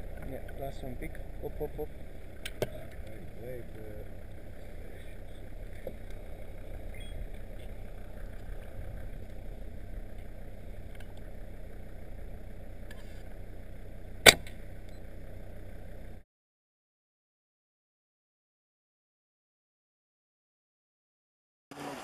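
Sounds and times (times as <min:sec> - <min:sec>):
steady low rumble: 0:00.0 - 0:16.2
dart rifle shot: 0:14.2 - 0:14.6.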